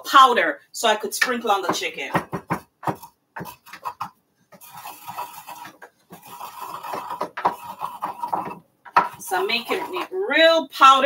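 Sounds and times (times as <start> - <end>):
pestle tapping in mortar: 1.7 - 10.0
pestle grinding in mortar: 1.7 - 10.2.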